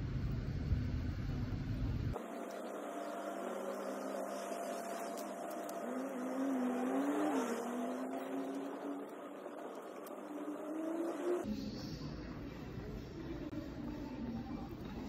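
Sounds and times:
street traffic: 0.0 - 14.0
car passing by: 2.2 - 11.5.

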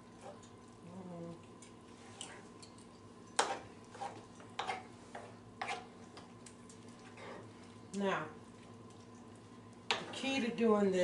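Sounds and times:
metal spoon stirring in skillet: 1.9 - 7.8.

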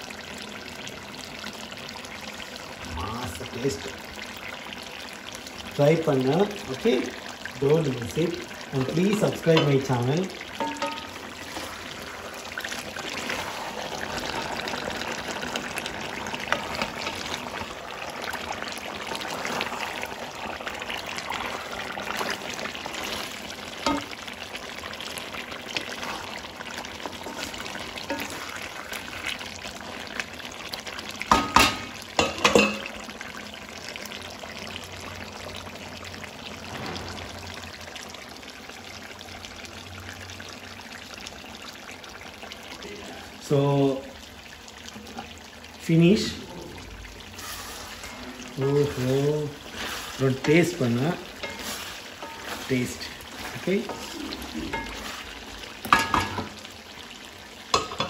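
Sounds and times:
curry sizzling and bubbling: 0.0 - 58.0
wooden spatula stirring: 6.8 - 30.3, 47.3 - 56.6.

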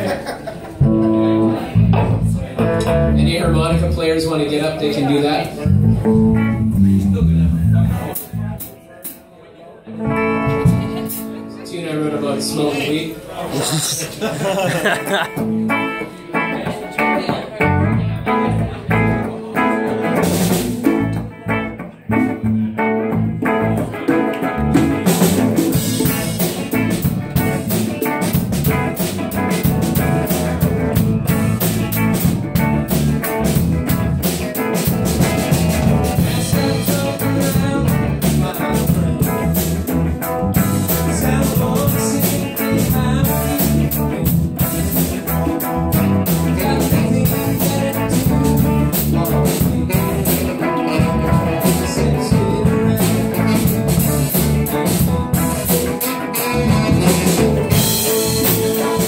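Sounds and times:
electric guitars: 0.0 - 8.9, 9.9 - 59.0
live blues band playing: 0.0 - 59.0
drum kit cymbals: 19.9 - 21.4, 24.4 - 59.0.

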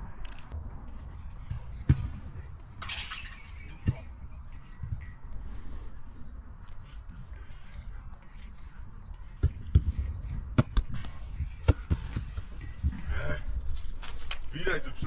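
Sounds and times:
faint bird chirps: 3.0 - 11.6.

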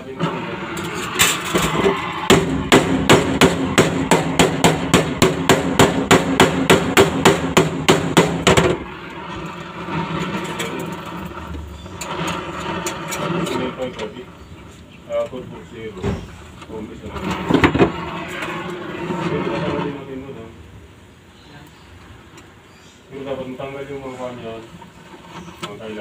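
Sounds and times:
hammer striking ringing metal panel: 0.9 - 8.9.

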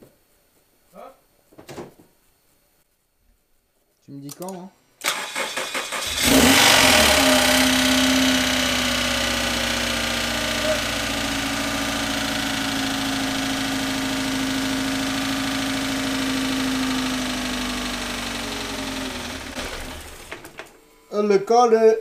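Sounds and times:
car engine idling and stalling: 5.0 - 20.7.

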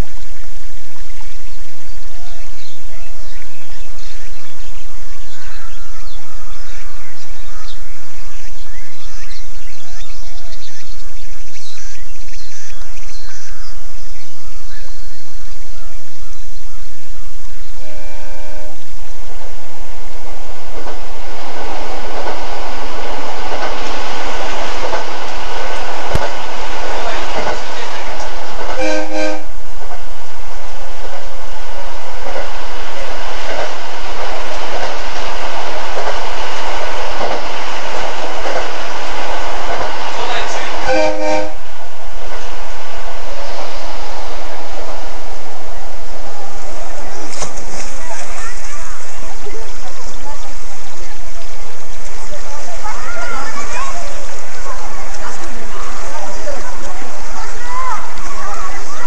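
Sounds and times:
small birds chirping: 0.3 - 16.8
train horn blast: 17.8 - 19.3, 26.1 - 29.8, 39.9 - 42.7
train wheels clattering on rails: 23.2 - 28.8.

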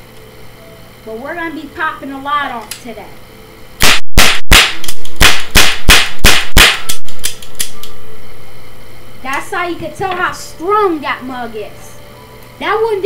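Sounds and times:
toy cap gun pops: 3.8 - 7.9.

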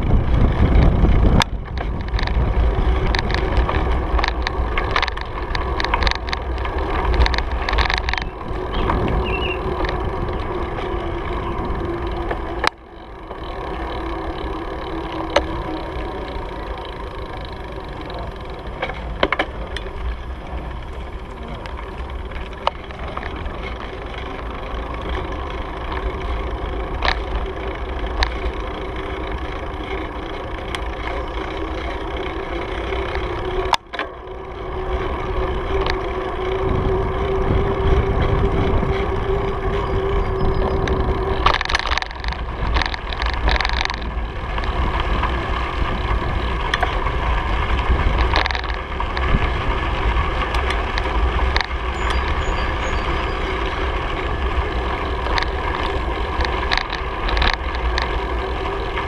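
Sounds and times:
wind rushing over microphone: 0.0 - 13.2, 34.4 - 59.0
bicycle knocking over bumps: 0.0 - 59.0
bicycle tyre rolling: 0.0 - 59.0
steady hum: 0.0 - 59.0.

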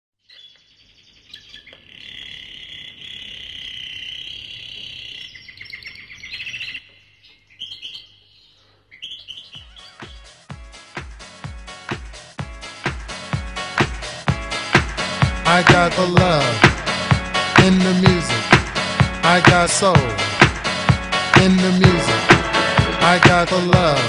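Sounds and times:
birds chirping and trilling: 0.2 - 11.4
house music kick drum: 10.0 - 24.0.

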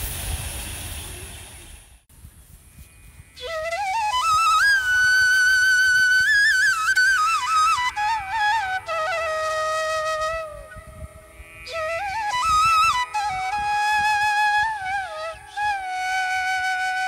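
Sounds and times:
slow flute melody: 3.4 - 17.0.

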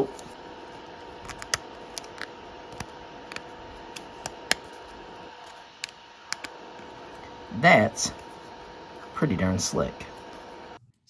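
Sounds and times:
faint steady hum: 0.0 - 11.0
plastic disc clicking: 1.2 - 4.8, 5.8 - 6.6.

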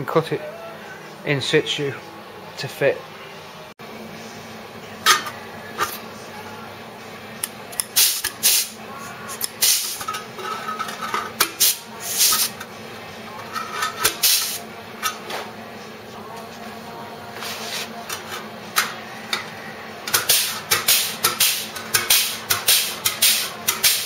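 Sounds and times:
air nibbler cutting steel: 7.7 - 10.2, 20.1 - 24.0.

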